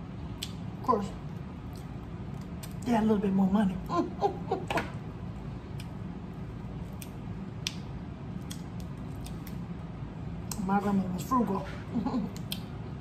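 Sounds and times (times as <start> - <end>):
crab shells snapping: 6.9 - 9.6.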